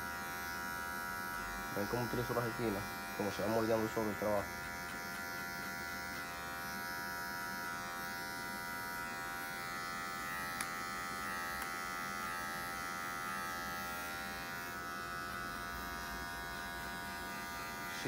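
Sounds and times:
electric hair clipper buzzing: 0:00.0 - 0:18.0
small ticks: 0:04.6 - 0:05.8.

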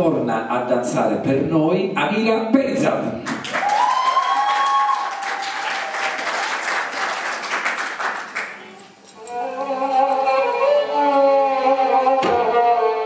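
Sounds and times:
audience applauding: 0:03.3 - 0:08.9
violin music: 0:09.3 - 0:13.0.

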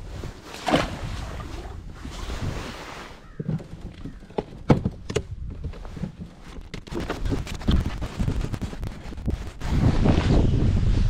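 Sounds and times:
wind buffeting microphone: 0:00.0 - 0:11.0
water splash: 0:00.5 - 0:01.6.

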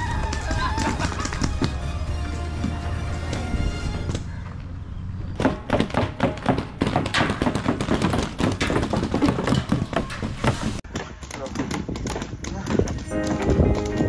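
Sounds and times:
rapid sharp knocks and taps: 0:05.4 - 0:10.3.

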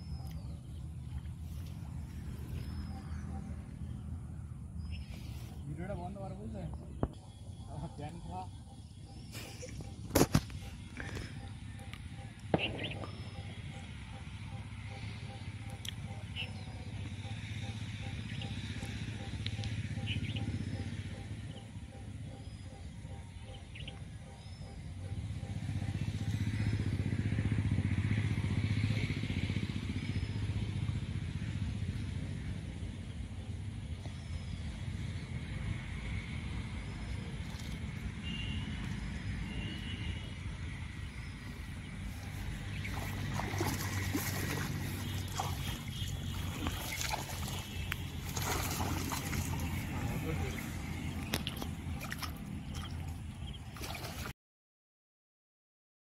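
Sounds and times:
low steady rumble: 0:00.0 - 0:53.8
vehicle engine low pulsing: 0:00.0 - 0:54.3
water splashing and trickling: 0:37.0 - 0:39.0, 0:40.5 - 0:54.3.

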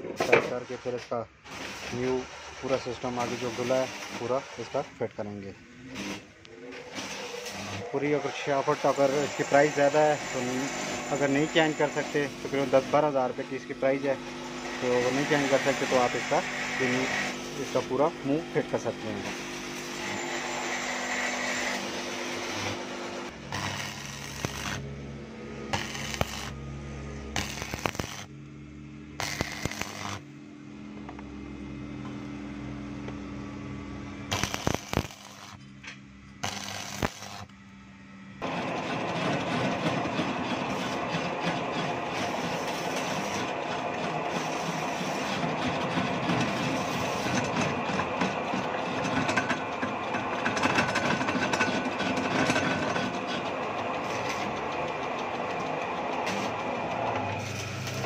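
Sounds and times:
arc welding crackle: 0:01.4 - 0:04.9, 0:05.8 - 0:08.1, 0:21.8 - 0:25.0, 0:25.6 - 0:28.4, 0:29.1 - 0:30.3, 0:34.1 - 0:37.7, 0:42.0 - 0:48.4, 0:56.2 - 0:56.6, 0:57.3 - 0:58.0
metal lathe cutting metal: 0:01.5 - 0:28.3, 0:29.2 - 0:30.2, 0:36.4 - 0:37.5, 0:38.4 - 0:58.0.

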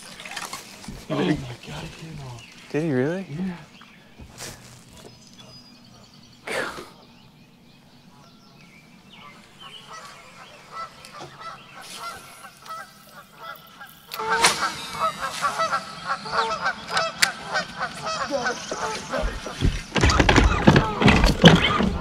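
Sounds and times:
geese honking: 0:09.1 - 0:22.0.

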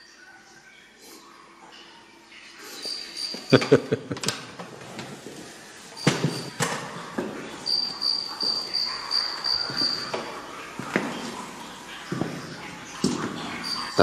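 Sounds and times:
crickets chirping: 0:02.6 - 0:03.7, 0:06.0 - 0:06.6, 0:07.6 - 0:10.2, 0:13.6 - 0:14.0
footsteps on hard floor: 0:09.6 - 0:11.4.

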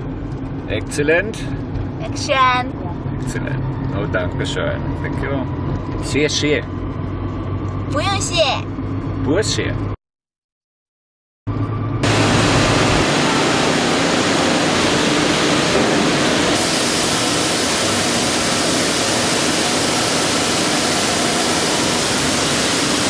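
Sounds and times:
loud rushing noise: 0:12.0 - 0:23.0.

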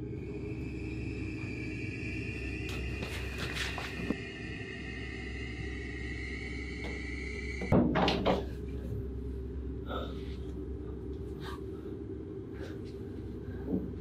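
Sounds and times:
high steady tone: 0:00.0 - 0:07.7
low steady rumble: 0:00.0 - 0:14.0.

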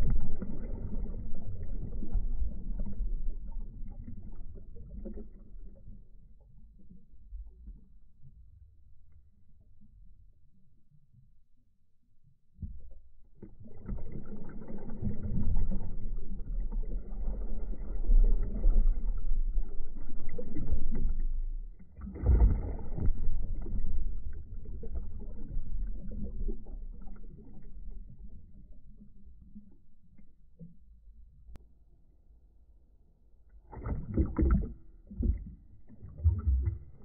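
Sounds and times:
underwater bubbling surges: 0:00.0 - 0:07.8, 0:13.5 - 0:30.0, 0:33.7 - 0:37.0
muffled underwater water churning: 0:00.0 - 0:11.7, 0:12.3 - 0:31.6, 0:33.5 - 0:37.0.

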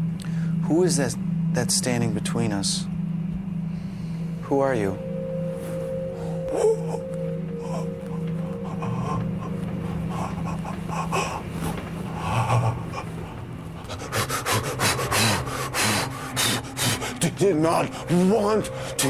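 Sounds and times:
low steady drone: 0:00.0 - 0:19.0
person breathing heavily rasping: 0:00.2 - 0:00.6, 0:03.6 - 0:04.4, 0:06.0 - 0:19.0.

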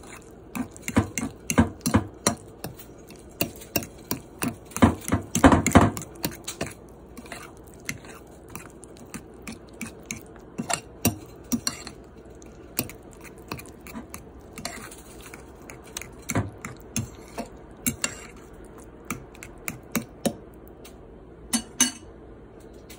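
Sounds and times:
utensils clinking against dishes: 0:21.6 - 0:22.1.

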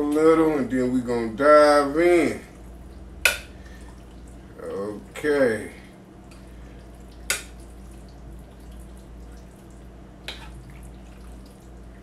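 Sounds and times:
low steady hum: 0:00.0 - 0:12.0
spoon stirring wet mixture: 0:06.2 - 0:12.0.

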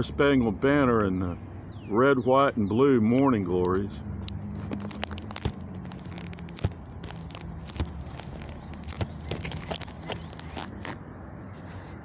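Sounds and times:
microphone handling clicks and crackles: 0:04.2 - 0:11.0.

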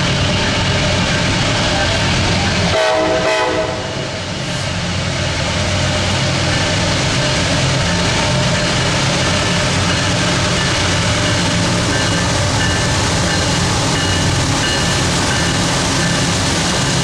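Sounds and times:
diesel locomotive engine drone: 0:00.0 - 0:17.0
locomotive horn blast: 0:02.6 - 0:04.2.

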